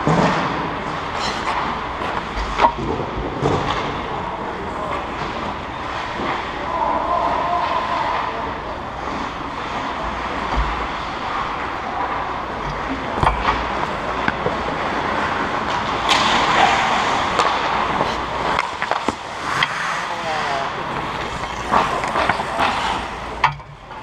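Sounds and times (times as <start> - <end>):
skating and game noise: 0.0 - 24.0
skate blades scraping ice: 16.1 - 23.3.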